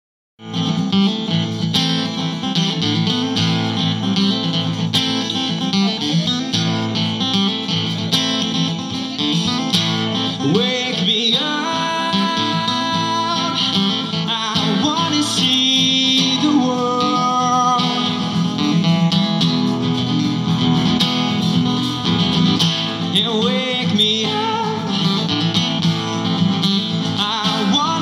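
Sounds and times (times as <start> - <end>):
acoustic guitar strumming: 0.4 - 28.0
man singing: 9.2 - 19.4, 22.9 - 28.0.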